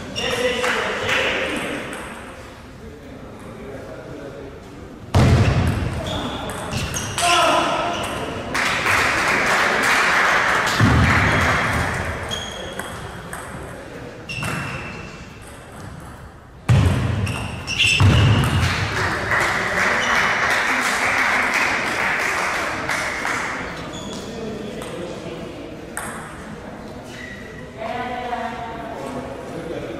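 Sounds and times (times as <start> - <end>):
spectators clapping and cheering: 8.5 - 12.1, 18.6 - 23.7.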